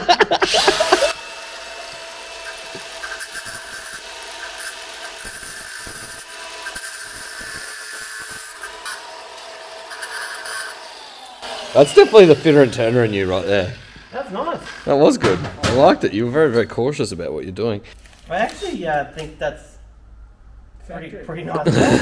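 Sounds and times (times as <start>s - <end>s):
power tool whining: 0.4s - 14.9s
tool scraping the work: 0.5s - 15.0s.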